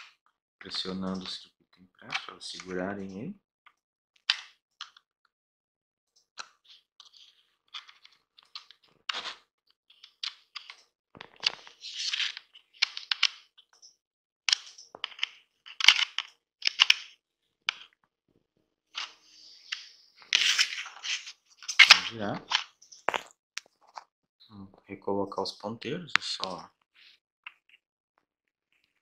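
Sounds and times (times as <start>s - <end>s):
plastic scraping: 19.0s - 24.1s.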